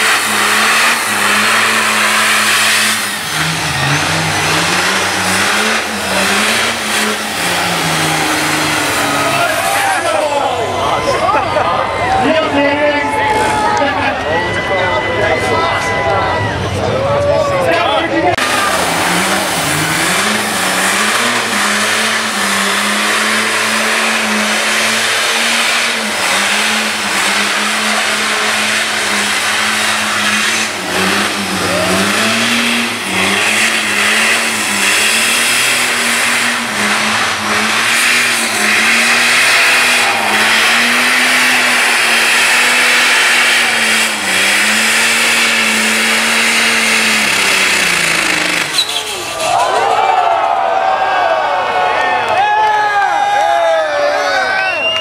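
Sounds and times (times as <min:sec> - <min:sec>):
spinning tyres hissing: 0:00.0 - 0:10.4, 0:18.4 - 0:49.5
diesel engine at high revs: 0:00.0 - 0:16.9, 0:17.6 - 0:49.4.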